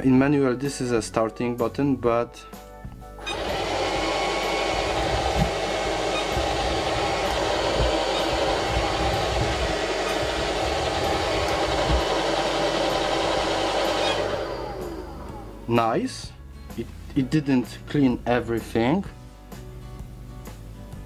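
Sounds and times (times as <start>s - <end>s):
robot vacuum cleaner whirring: 3.2s - 15.7s.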